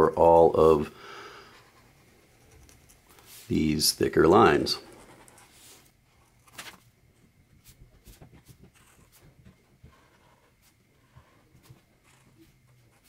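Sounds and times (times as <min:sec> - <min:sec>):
felt-tip pen scratching on paper: 0:08.0 - 0:13.0.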